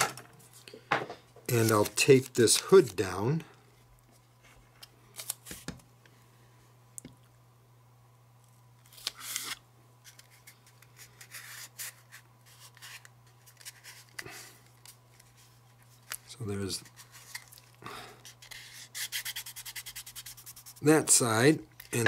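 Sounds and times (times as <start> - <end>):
tape rubbing and crinkling: 1.5 - 3.0, 8.8 - 20.9.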